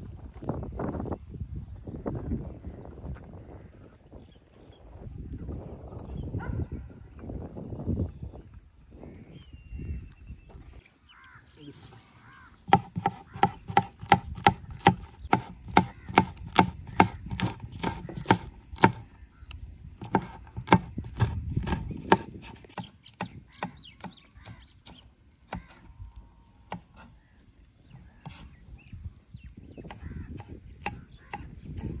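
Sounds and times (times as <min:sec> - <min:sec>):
rapid striking in food preparation: 0:12.7 - 0:19.0, 0:20.0 - 0:24.2.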